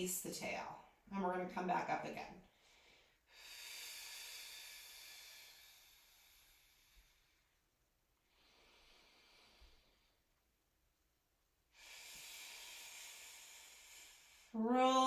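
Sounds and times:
woman breathing: 2.4 - 10.4, 11.7 - 14.6.

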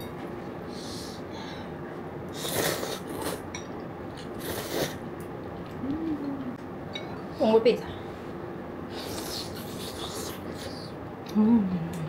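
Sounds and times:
hissing breaths while eating: 0.7 - 3.4.

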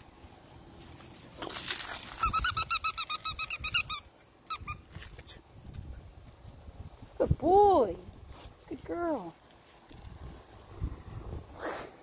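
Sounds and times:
squeaky dog toy squeaking: 2.2 - 4.9.

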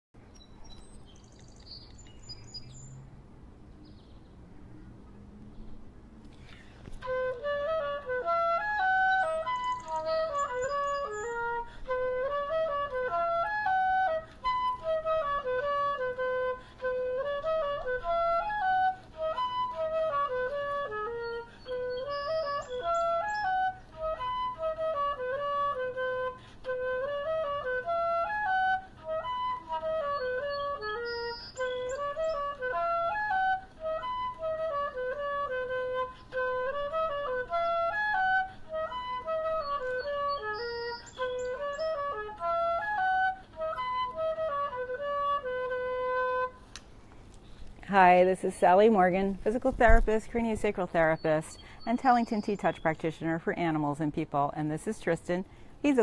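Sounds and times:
melody of held notes: 7.0 - 46.9.

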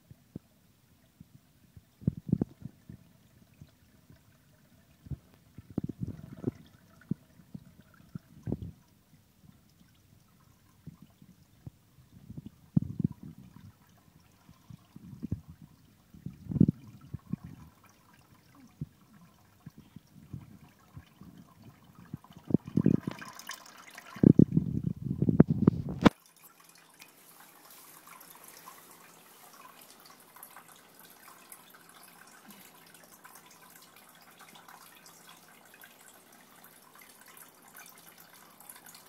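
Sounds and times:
fountain water trickling: 0.9 - 24.7, 26.0 - 39.0
cat lapping water: 2.1 - 24.6.

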